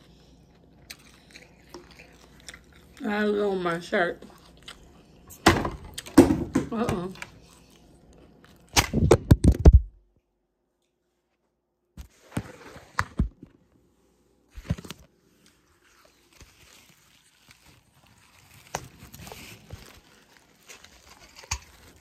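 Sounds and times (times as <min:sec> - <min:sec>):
soft rustling: 0:14.4 - 0:22.0.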